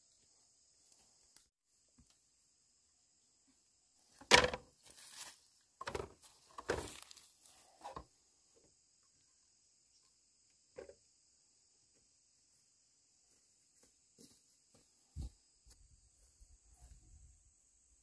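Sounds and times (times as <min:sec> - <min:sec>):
insects chirring: 0:00.0 - 0:18.0
bamboo knocking and clattering: 0:04.1 - 0:07.2.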